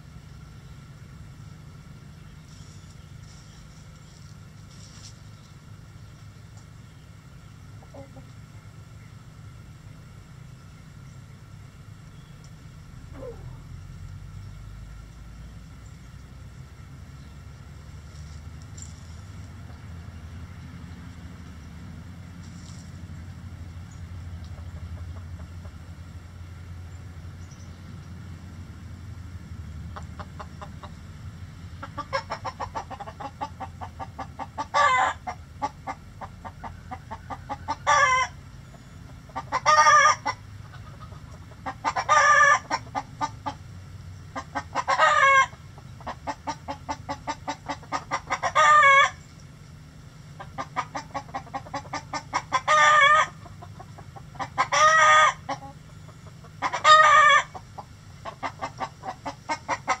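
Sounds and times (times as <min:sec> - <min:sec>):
chicken clucking: 0:07.8 - 0:08.4, 0:13.1 - 0:13.6, 0:29.9 - 0:31.0, 0:31.8 - 0:43.6, 0:44.3 - 0:49.3, 0:50.4 - 1:00.0
hen squawking: 0:13.1 - 0:13.7.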